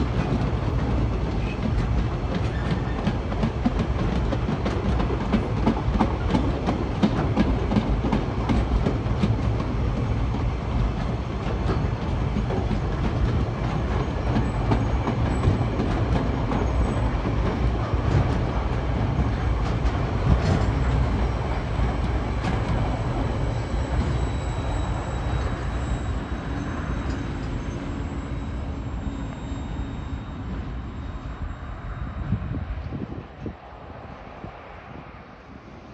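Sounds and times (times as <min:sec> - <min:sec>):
train wheels rumbling on rails: 0:00.0 - 0:35.9
faint high wheel squeal: 0:01.3 - 0:03.2, 0:13.3 - 0:17.5, 0:22.3 - 0:32.6.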